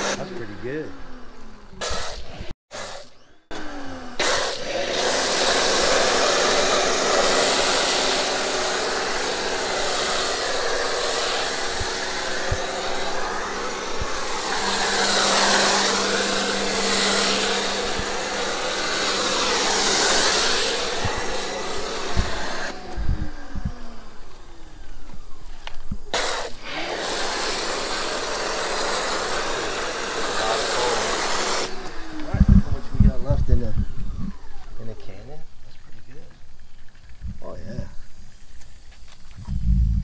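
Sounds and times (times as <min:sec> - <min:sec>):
foam cannon spraying hiss: 0:04.2 - 0:22.8, 0:26.0 - 0:31.8.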